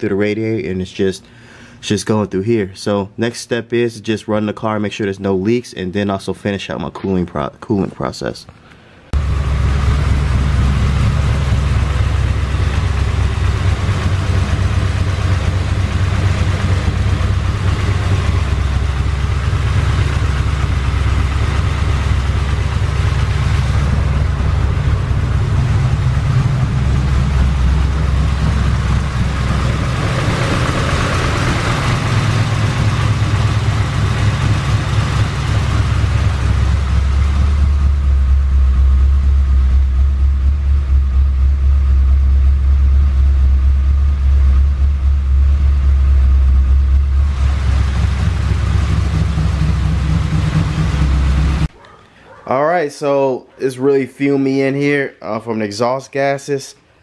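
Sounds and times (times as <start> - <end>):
car engine idling: 9.1 - 51.8.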